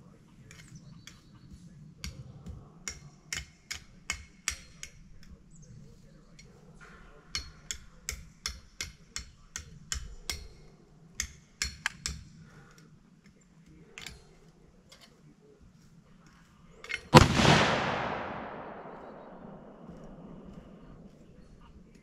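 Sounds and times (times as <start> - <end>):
rifle shot: 17.1 - 20.4.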